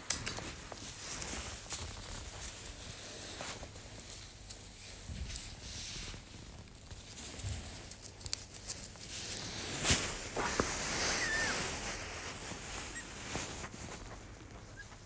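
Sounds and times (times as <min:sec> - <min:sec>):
rustling and small clicks: 0:00.0 - 0:02.7
animals scuffling in wood shavings: 0:00.4 - 0:15.0
faint high squeaks: 0:11.0 - 0:11.8.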